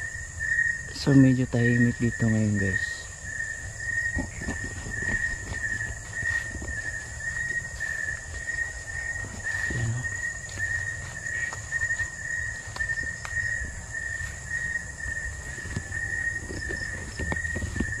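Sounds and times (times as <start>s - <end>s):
high insect buzz: 0.0s - 18.0s
insects trilling: 0.0s - 18.0s
rustling and knocks: 4.1s - 7.0s, 15.7s - 18.0s.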